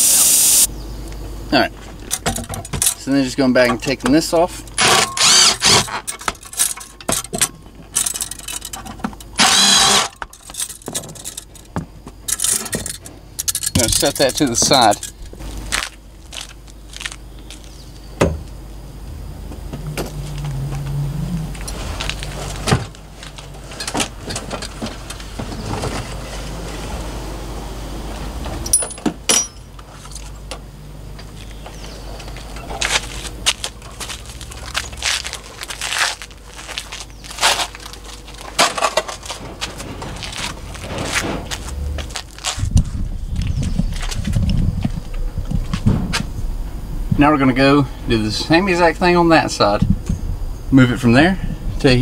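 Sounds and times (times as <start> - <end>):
metal clanks clicks and rattles: 2.0 - 4.2, 4.8 - 15.4, 21.6 - 26.0
steady low rumble: 6.2 - 52.0.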